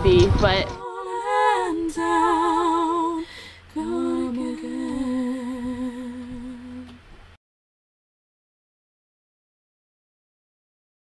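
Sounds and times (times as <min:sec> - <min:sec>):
woman humming: 0:00.6 - 0:07.0.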